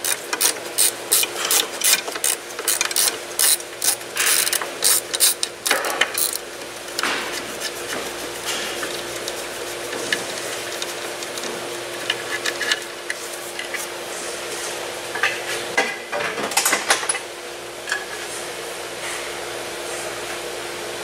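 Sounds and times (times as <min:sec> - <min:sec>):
steady low hum: 0:00.0 - 0:16.1.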